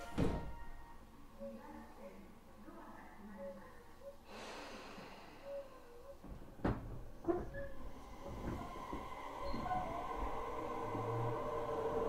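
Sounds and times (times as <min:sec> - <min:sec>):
train low rumble: 0:07.0 - 0:12.0.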